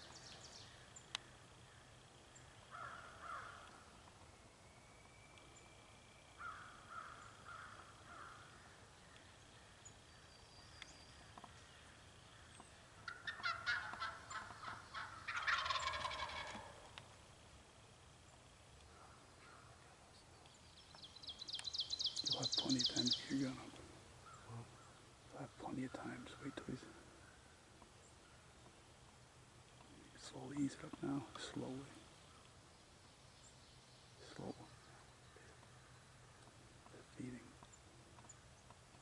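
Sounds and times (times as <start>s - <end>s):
soft turkey calls: 0.0s - 4.4s, 5.0s - 32.7s, 34.2s - 39.0s
turkey gobbling: 13.0s - 17.0s.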